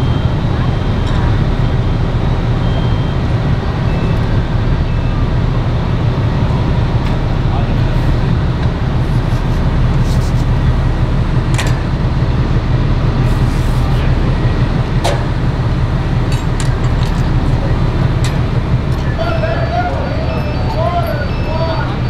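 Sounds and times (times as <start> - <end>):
diesel engine rumbling: 0.0 - 22.0.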